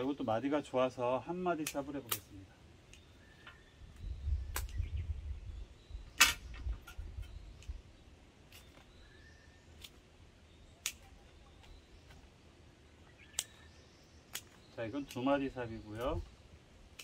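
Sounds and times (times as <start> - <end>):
scissors snipping stems: 1.5 - 3.1, 10.7 - 12.2, 13.3 - 13.7, 14.3 - 16.2.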